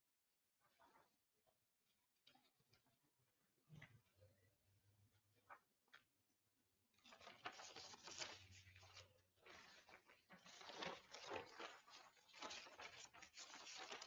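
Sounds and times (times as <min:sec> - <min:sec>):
paper rustling and crinkling: 0:07.0 - 0:14.0.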